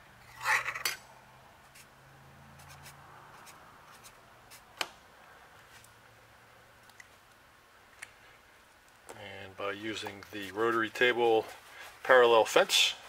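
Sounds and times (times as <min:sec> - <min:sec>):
marker rubbing on metal: 0:02.6 - 0:04.7
marker scrape: 0:02.6 - 0:04.7.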